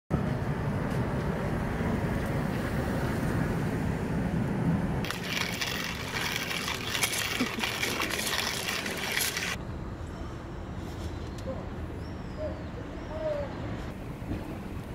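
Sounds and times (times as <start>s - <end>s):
coffee mill grinding beans: 5.0s - 9.6s.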